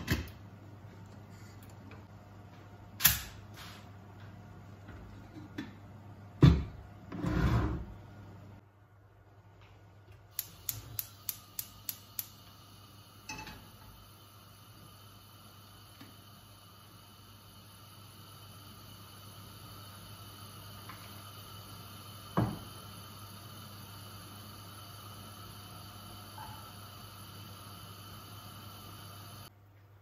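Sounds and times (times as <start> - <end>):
gas hob igniter clicking: 3.0 - 3.4, 10.2 - 14.0.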